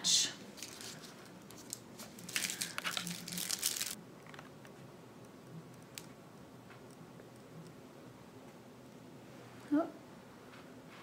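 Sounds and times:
plastic bag crinkling: 0:00.5 - 0:04.5.

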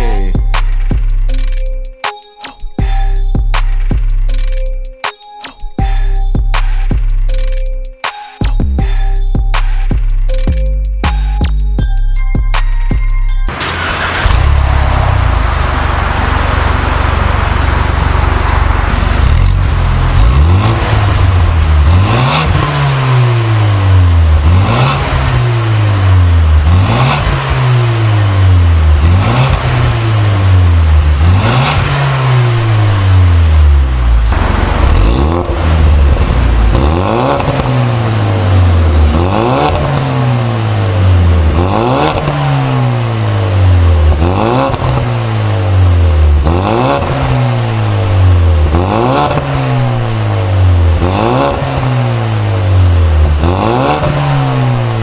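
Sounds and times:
car engine idling: 0:08.7 - 0:55.0
car engine revving: 0:13.5 - 0:55.0.

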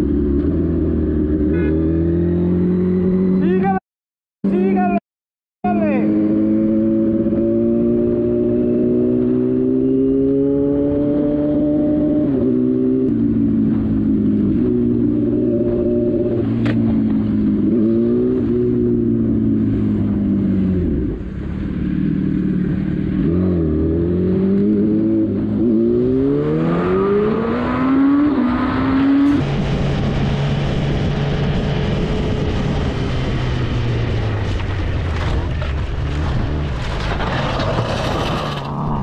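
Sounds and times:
motorcycle engine revving: 0:00.0 - 0:03.6, 0:05.9 - 0:36.9.

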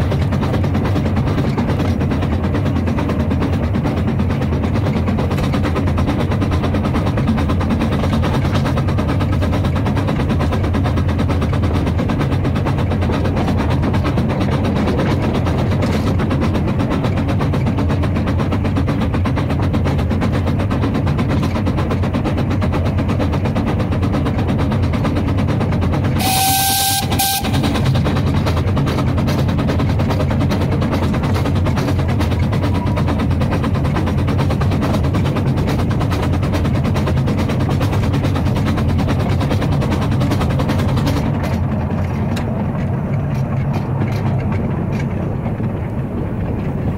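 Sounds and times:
steam locomotive exhaust and wheels: 0:00.0 - 0:46.9
steam whistle: 0:26.2 - 0:27.8
steam hissing: 0:26.2 - 0:28.4.

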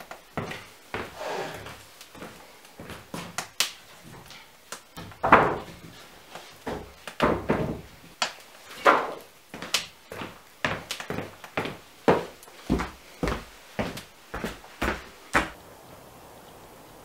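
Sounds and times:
wooden floorboards clattering: 0:04.0 - 0:08.2.

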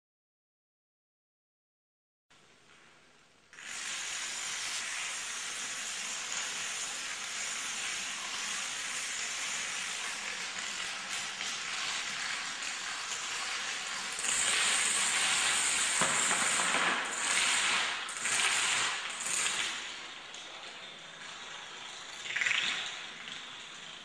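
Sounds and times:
dominoes toppling on wooden floor: 0:14.2 - 0:19.8.

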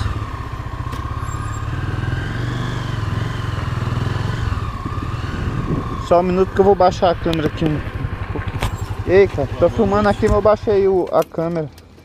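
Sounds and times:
motorcycle engine putter: 0:07.2 - 0:09.3.

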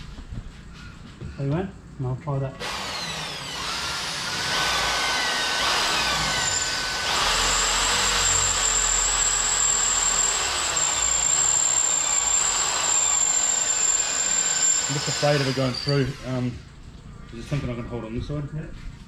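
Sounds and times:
power drill boring plastic: 0:02.6 - 0:16.5.

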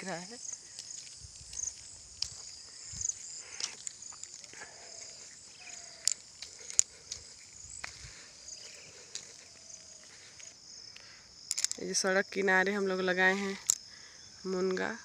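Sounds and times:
footsteps on a field path: 0:00.0 - 0:11.8
insects chirring: 0:00.0 - 0:15.0
sharp clicks: 0:05.7 - 0:08.0, 0:10.4 - 0:11.8.

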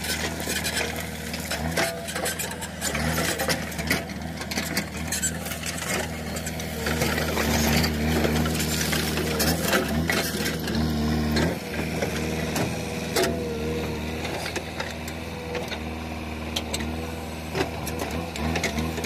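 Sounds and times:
diesel engine under load: 0:00.0 - 0:19.0
bucket scraping through stones: 0:04.8 - 0:11.6.

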